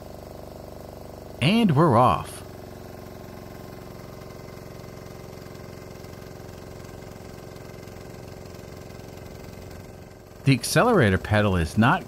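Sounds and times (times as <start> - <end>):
small diesel engine running: 0.0 - 12.0.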